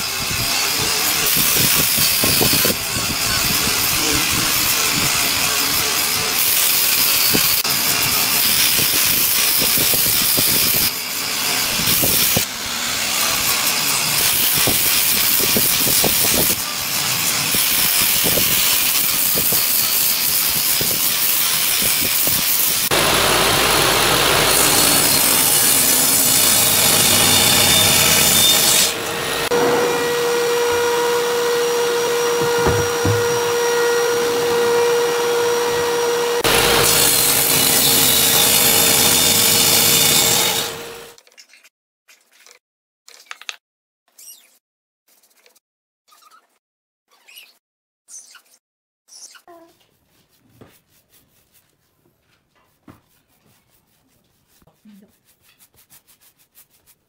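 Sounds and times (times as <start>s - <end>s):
angle grinder sanding wood: 0.0s - 41.1s
humming machine drone: 29.0s - 36.7s.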